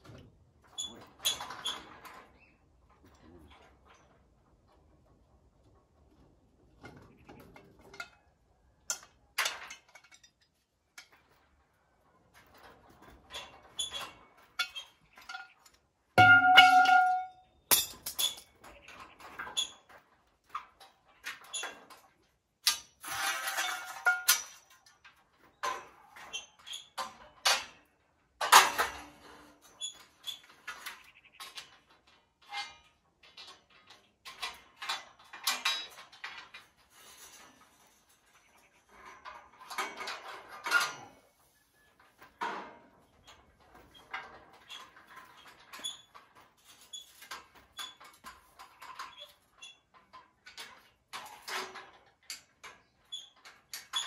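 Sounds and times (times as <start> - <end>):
loud ringing metal clang: 16.2 - 17.9
metal scaffolding clanking: 16.2 - 18.5, 22.7 - 41.4.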